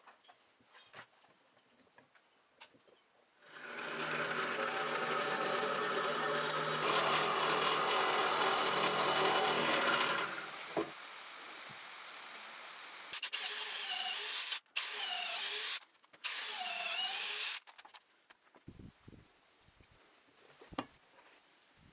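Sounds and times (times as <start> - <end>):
drill press boring wood: 3.4 - 17.6
cordless drill bursts: 3.5 - 10.9, 13.1 - 17.7.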